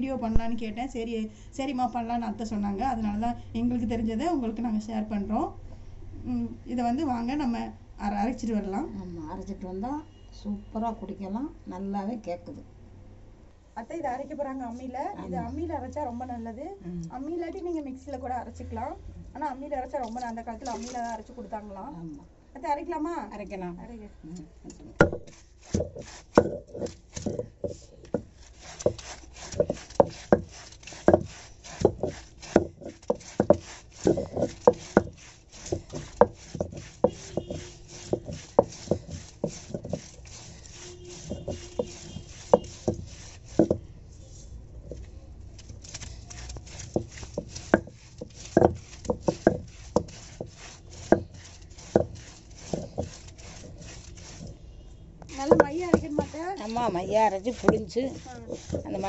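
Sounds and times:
stone roller grinding on slab: 25.0s - 43.9s, 45.8s - 54.6s, 55.3s - 59.0s.

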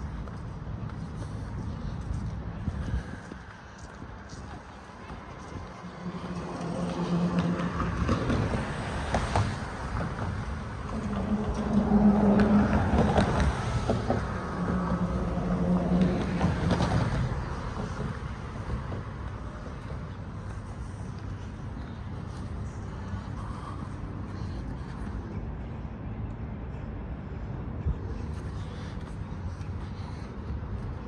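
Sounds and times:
low motor drone: 5.3s - 9.0s, 10.0s - 18.6s.

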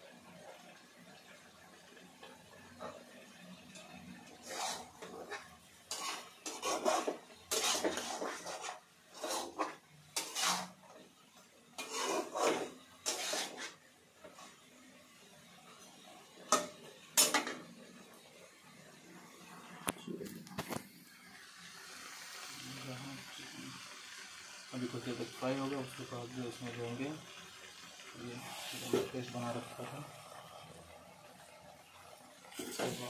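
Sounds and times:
spatula scraping a metal pan: 4.2s - 11.0s, 11.8s - 14.6s.

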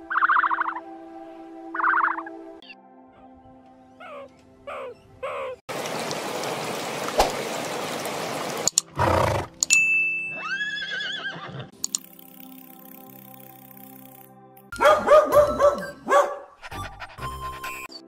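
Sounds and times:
background music: 0.0s - 5.6s, 8.6s - 18.0s
horse whinnying: 9.0s - 9.5s, 10.4s - 11.7s.

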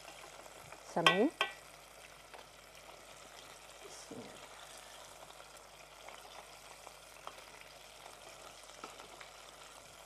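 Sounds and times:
chicken deep-frying in oil: 0.0s - 10.0s.

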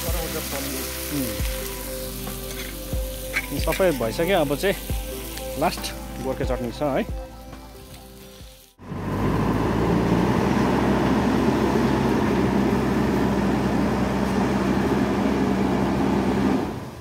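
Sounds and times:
diesel engine running: 8.8s - 17.0s.

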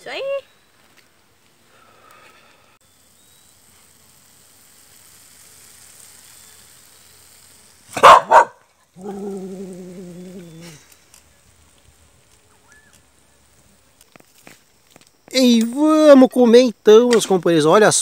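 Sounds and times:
dog barking: 8.0s - 9.4s.

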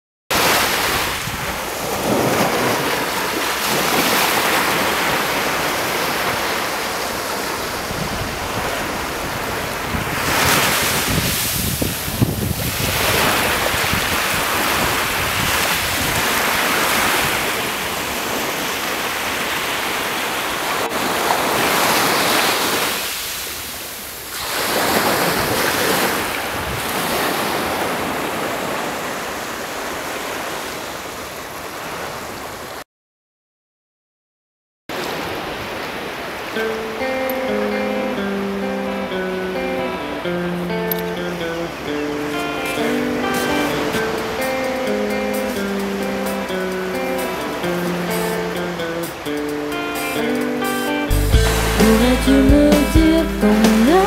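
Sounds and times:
small surf breaking on sand: 0.3s - 32.4s
wind buffeting microphone: 7.6s - 17.5s.

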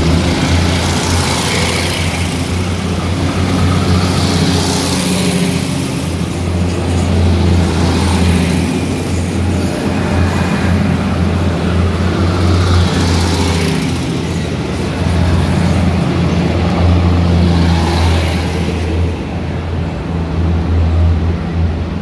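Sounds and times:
heavy vehicle engine rumble: 0.0s - 22.0s
rush of noise: 0.0s - 22.0s.

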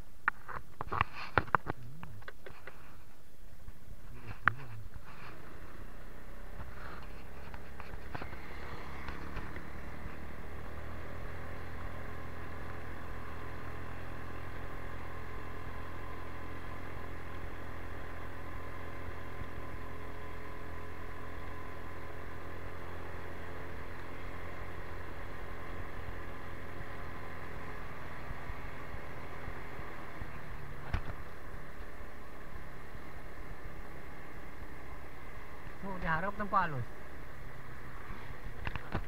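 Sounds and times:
motorcycle engine running: 1.0s - 39.0s
road noise rushing: 2.6s - 20.2s.

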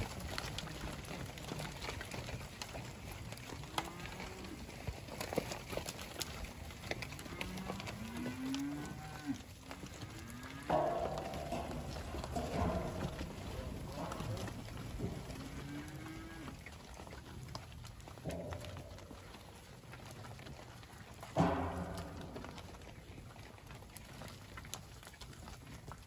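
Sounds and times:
cattle mooing: 3.5s - 4.8s, 7.0s - 17.2s.

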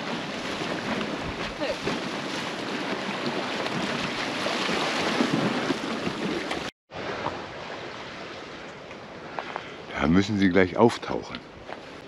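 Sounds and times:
waves washing over rocks: 0.0s - 6.7s.

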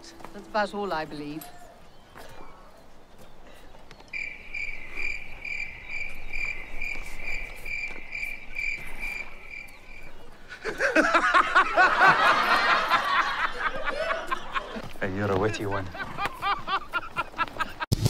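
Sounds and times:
cricket chirping: 4.0s - 13.6s.

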